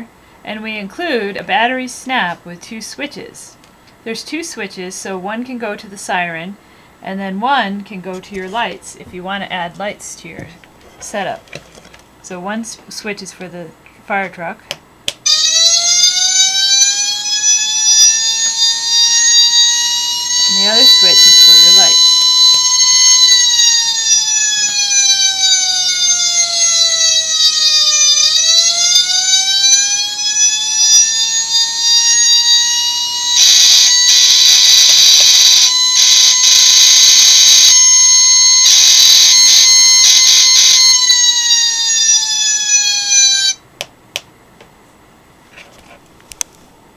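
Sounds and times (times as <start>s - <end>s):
electronic siren wail: 15.3s - 43.6s.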